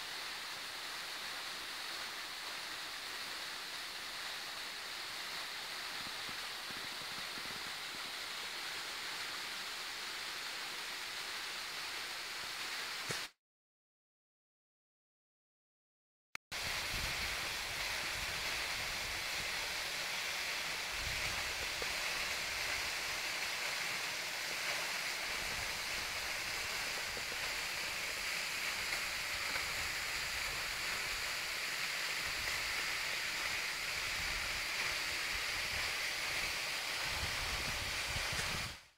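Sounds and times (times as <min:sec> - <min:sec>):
waterfall rushing: 0:16.6 - 0:38.6.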